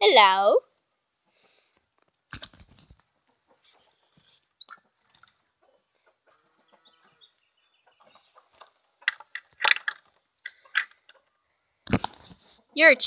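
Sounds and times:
chickens clucking: 2.6 - 9.6, 10.5 - 13.0.

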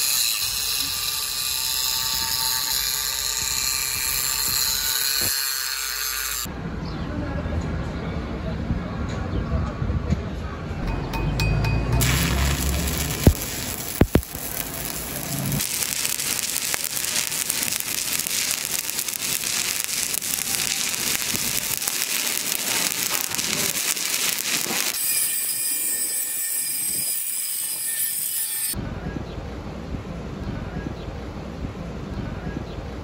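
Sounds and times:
welding electrode pops: 12.0 - 25.0
welding arc crackling and sizzling: 12.0 - 28.8.

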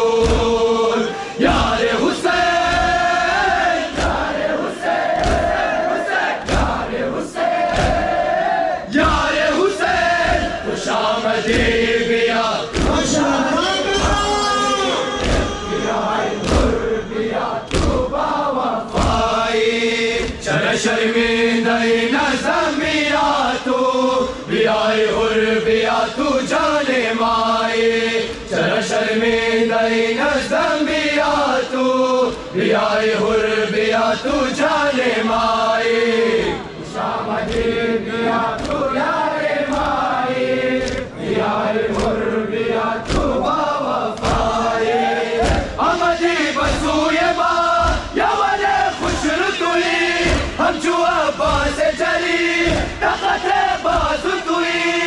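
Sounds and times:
men chanting in unison: 0.0 - 55.0
hands beating chests: 5.0 - 7.0, 7.6 - 8.3, 9.0 - 20.5, 43.0 - 44.7, 45.3 - 51.8.

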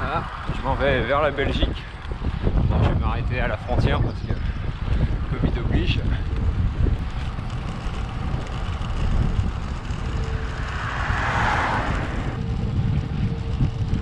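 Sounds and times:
wind buffeting microphone: 0.0 - 14.0
passing van road noise: 6.5 - 14.0.

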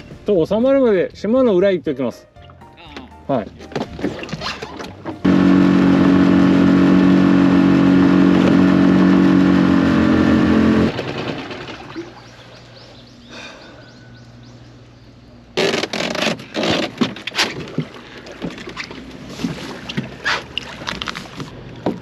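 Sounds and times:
outboard motor running: 3.4 - 14.2.

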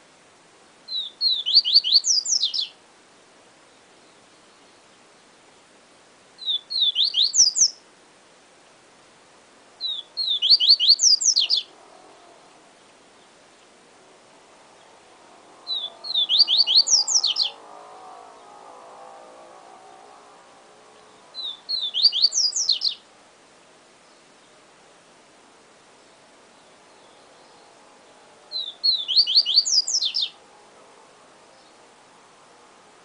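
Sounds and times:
bird singing whistled song: 0.9 - 2.8, 6.4 - 7.8, 9.8 - 11.7, 15.7 - 17.6, 21.3 - 23.0, 28.5 - 30.4.

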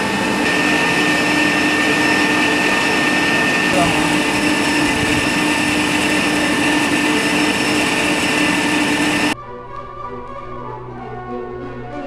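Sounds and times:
turbine mechanical noise with whine: 0.0 - 9.4.

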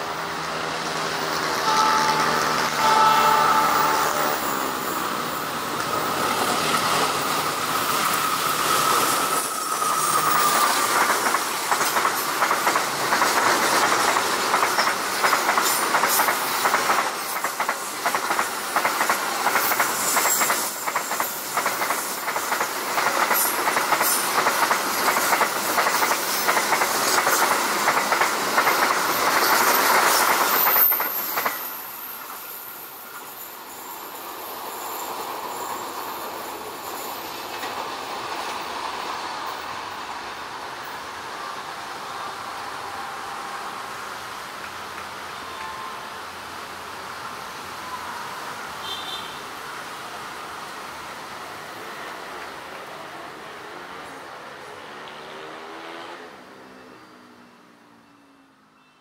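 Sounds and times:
train wheels clattering over rail joints: 9.9 - 31.8.

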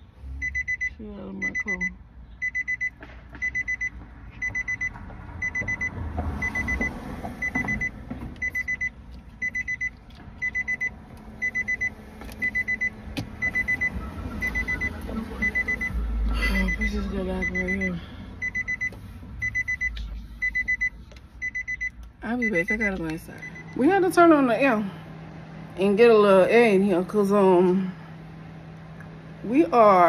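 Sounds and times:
rapid high electronic beeps: 0.4 - 23.8.

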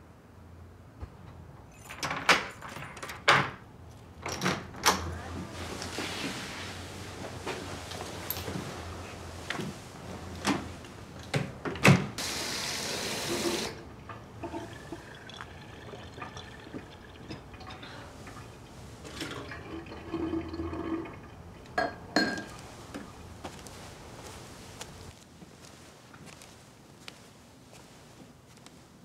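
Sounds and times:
water running from kitchen tap: 12.2 - 13.8, 14.4 - 21.6.

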